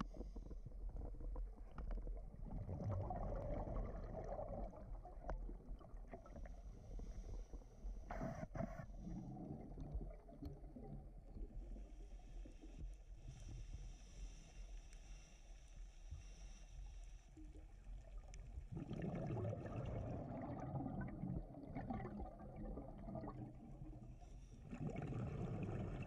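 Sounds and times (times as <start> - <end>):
regulator bubbles gurgling: 0.0 - 12.0, 18.0 - 26.0
low underwater rumble: 0.0 - 26.0.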